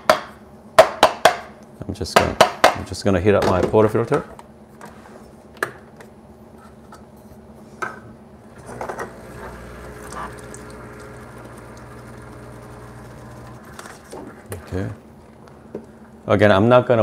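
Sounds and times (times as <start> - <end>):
espresso machine pump humming: 8.4 - 16.3.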